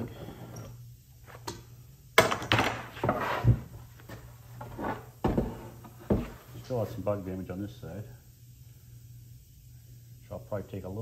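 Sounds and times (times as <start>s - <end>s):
board scraping and thudding: 2.3s - 6.5s.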